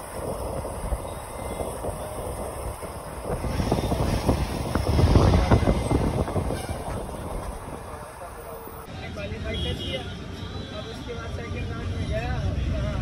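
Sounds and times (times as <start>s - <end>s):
rattling inside vehicle: 0.0s - 8.9s
vehicle engine and road rumble: 0.0s - 13.0s.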